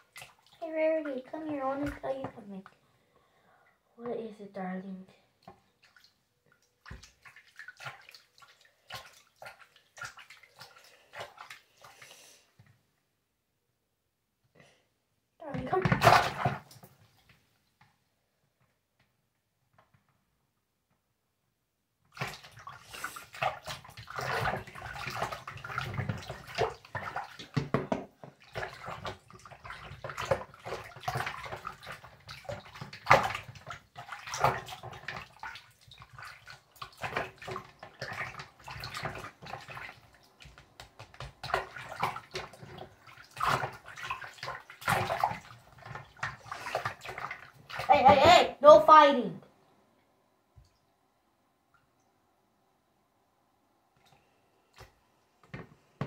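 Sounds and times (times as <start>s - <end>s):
water splashing in a sink: 0.0s - 2.8s, 4.0s - 12.8s, 15.4s - 17.9s, 22.0s - 48.9s, 53.9s - 56.0s.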